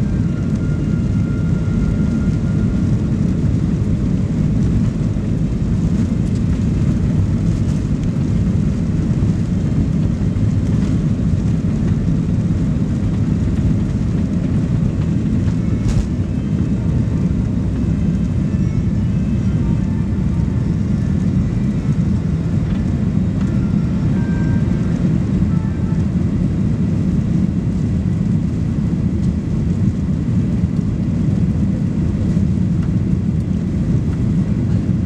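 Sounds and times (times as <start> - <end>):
jet engines deep rumble: 0.0 - 35.0.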